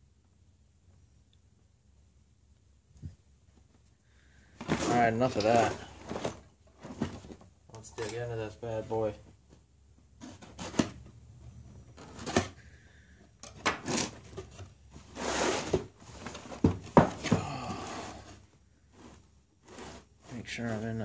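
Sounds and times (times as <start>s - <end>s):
box sliding on wooden bench: 13.8s - 18.4s, 19.0s - 20.3s
knocks on cardboard box: 16.6s - 17.6s.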